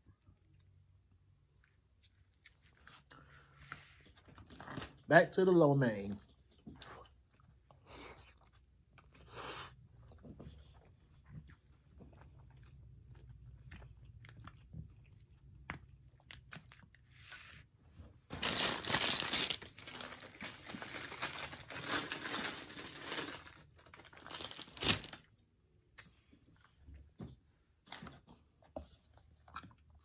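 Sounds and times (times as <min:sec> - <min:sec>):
chewing noodles: 0:00.2 - 0:05.0, 0:06.2 - 0:17.6, 0:28.6 - 0:30.0
plastic bag rustling: 0:18.2 - 0:25.2.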